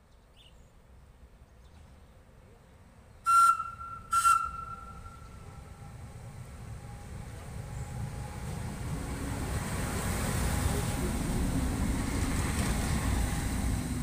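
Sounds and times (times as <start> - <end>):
train rumbling: 0.8 - 14.0
train horn blasts: 3.3 - 6.0.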